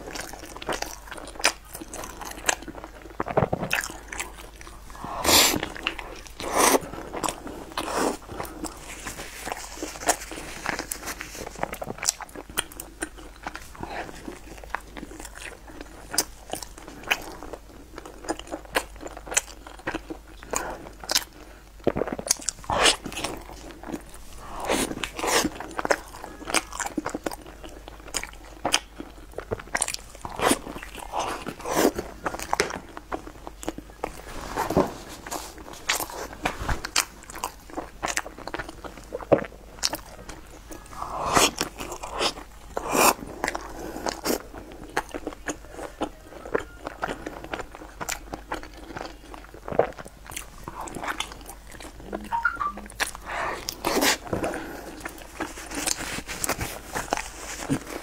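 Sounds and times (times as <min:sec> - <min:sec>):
chewing crusty bread: 0:00.0 - 0:58.0
wet mouth sounds: 0:18.3 - 0:33.0, 0:49.7 - 0:54.3.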